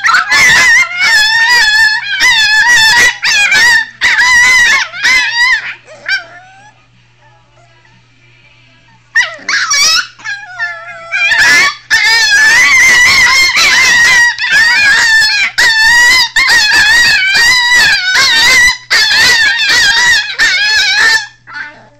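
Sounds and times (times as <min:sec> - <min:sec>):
puppies howling high-pitched: 0:00.0 - 0:06.8, 0:09.2 - 0:21.9.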